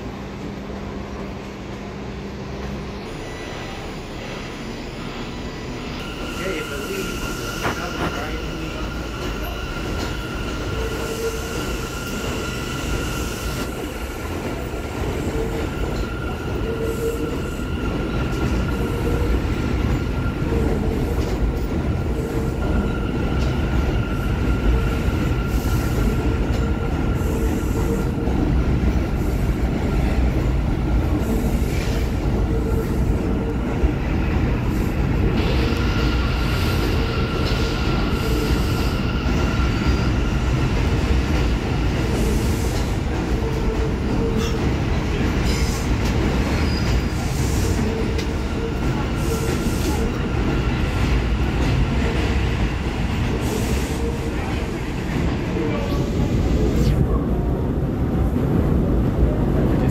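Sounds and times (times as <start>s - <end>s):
train rumbling on steel track: 0.0s - 59.9s.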